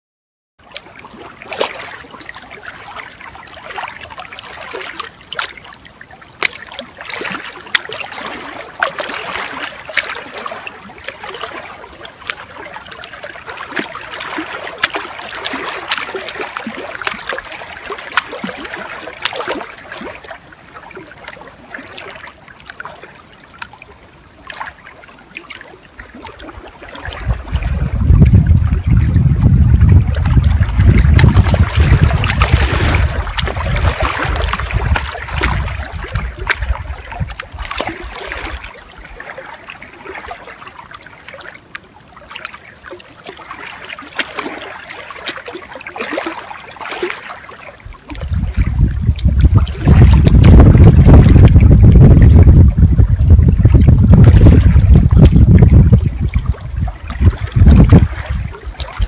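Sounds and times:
waves lapping against kayak hull: 0.6 - 59.0
wind rumble on microphone: 26.4 - 39.2, 47.8 - 59.0.

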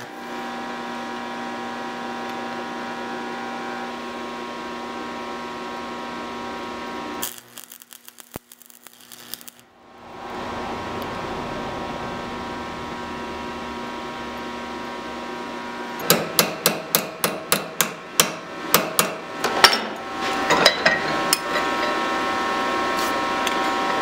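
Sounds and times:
hammer striking steel strip: 16.0 - 21.9.

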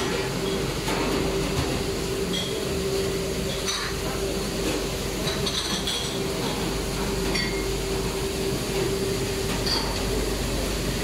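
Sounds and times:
dishwasher humming and rushing: 0.0 - 11.0
cutlery clinking in a rack: 5.2 - 6.2, 7.3 - 7.7, 9.5 - 10.1.

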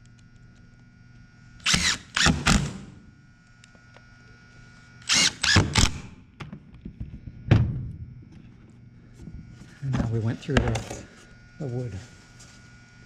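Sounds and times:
cordless drill driving screws: 1.6 - 2.9, 5.0 - 6.0
thud: 7.5 - 8.0.

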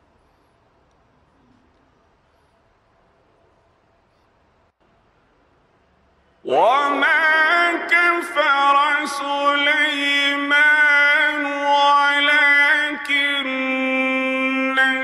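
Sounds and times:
man chanting melodically: 6.4 - 15.0.

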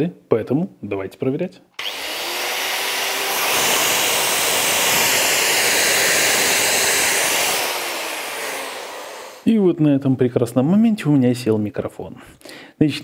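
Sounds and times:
circular saw motor whirring: 1.8 - 9.5.

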